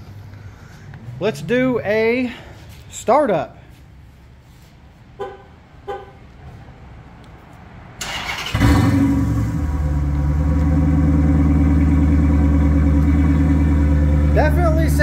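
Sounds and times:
car engine starting and idling: 8.0s - 15.0s.

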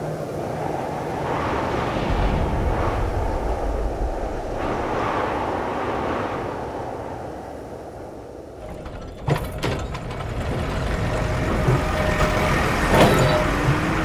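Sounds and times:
tram rumbling past: 8.6s - 14.0s.

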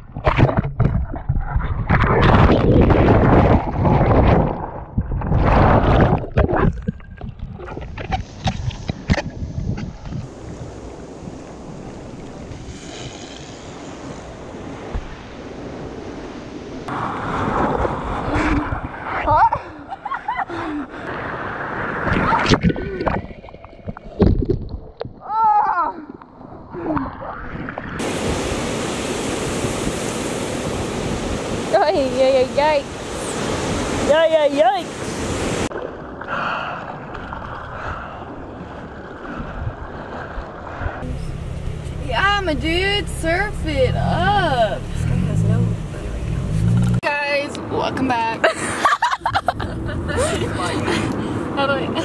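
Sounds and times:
wind buffeting microphone: 0.0s - 25.4s
rush of water and spray: 7.5s - 19.4s, 26.8s - 36.2s
surf washing around surfboard: 7.6s - 20.4s, 26.9s - 47.1s.

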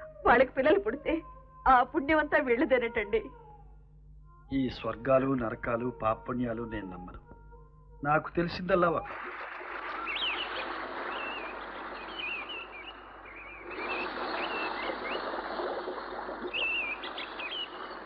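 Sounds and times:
birds chirping: 9.3s - 18.0s
water rushing through weir: 13.6s - 18.0s.

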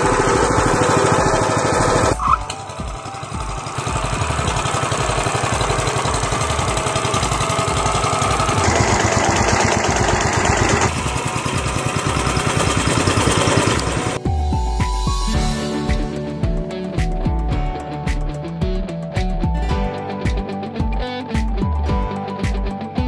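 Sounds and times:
sod cutter engine rattling drone: 0.0s - 14.2s.

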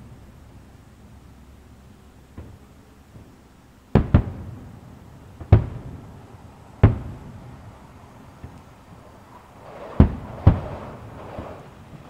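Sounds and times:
distant firework bangs: 3.9s - 12.0s.

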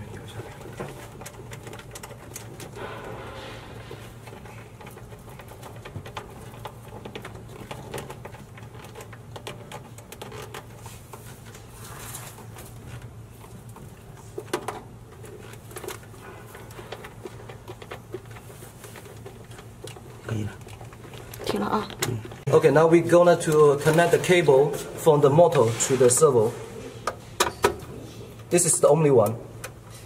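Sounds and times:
steady low hum: 0.0s - 30.0s
connector clicks and rustles: 0.4s - 2.8s, 4.2s - 11.6s, 12.3s - 22.6s.

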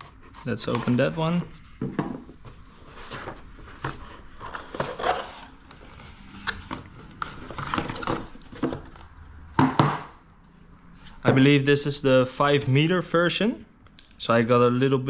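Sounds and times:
cardboard and cable rustling: 0.1s - 9.3s.

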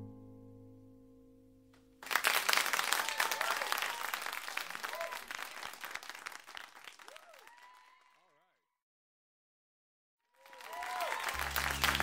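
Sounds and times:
audience applauding and cheering: 2.0s - 8.4s, 10.3s - 12.0s.

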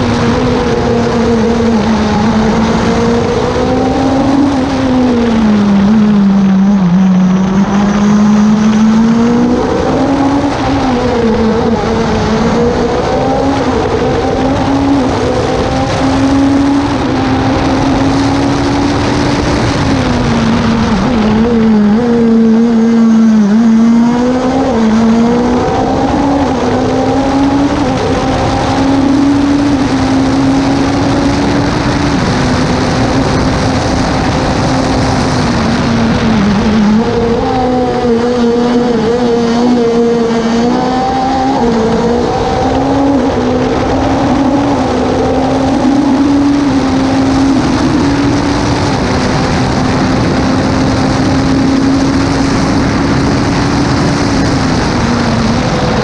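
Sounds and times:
race car engine revving: 0.0s - 56.0s
wind and road noise: 0.0s - 56.0s.

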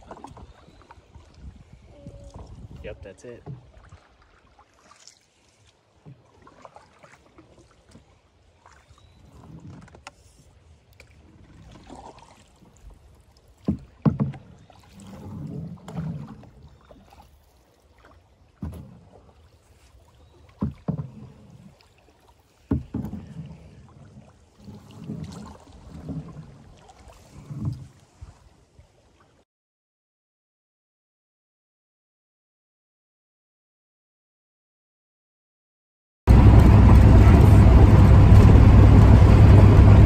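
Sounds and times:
paddle splashing in water: 0.0s - 29.4s, 36.3s - 40.0s
paddle knocking on canoe hull: 2.0s - 4.3s, 13.5s - 17.3s, 18.0s - 19.3s, 20.4s - 21.9s, 22.5s - 28.0s.

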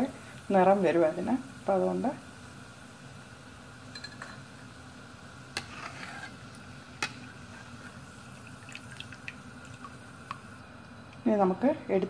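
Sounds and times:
hot oil sizzling: 0.0s - 12.0s.

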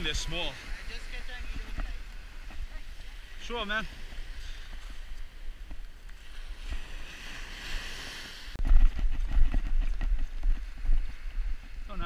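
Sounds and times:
surf and wind hiss: 0.0s - 8.6s
camera handling rumble and knocks: 8.6s - 10.6s.

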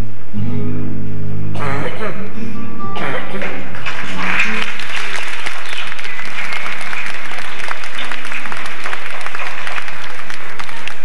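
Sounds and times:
music playing: 1.5s - 11.0s
audience applauding: 3.7s - 11.0s.

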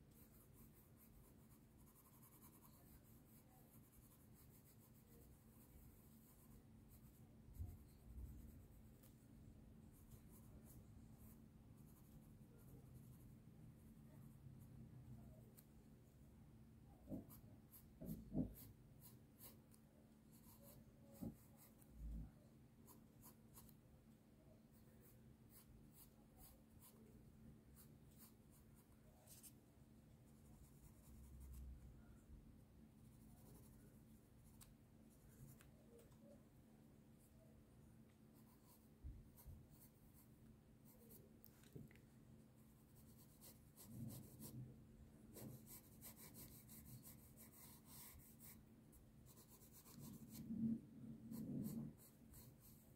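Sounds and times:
pencil scratching on paper: 0.0s - 9.2s, 9.9s - 13.4s, 17.1s - 21.9s, 22.8s - 23.8s, 24.7s - 27.1s, 27.7s - 29.6s, 30.3s - 31.7s, 33.0s - 34.6s, 38.4s - 41.2s, 42.6s - 44.6s, 45.3s - 52.9s.

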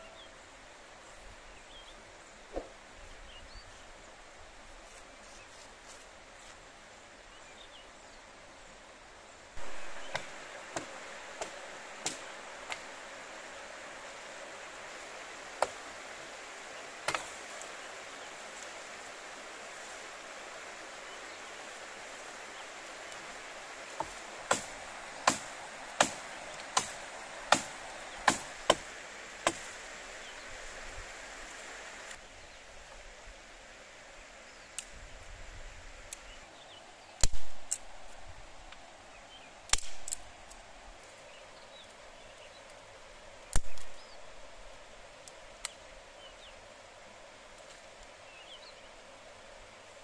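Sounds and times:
steady hiss: 0.0s - 50.0s
hatchet chopping branch: 9.6s - 12.9s, 15.5s - 15.9s, 17.0s - 17.7s, 23.9s - 29.8s, 37.2s - 37.9s, 39.7s - 40.2s, 43.5s - 44.0s.

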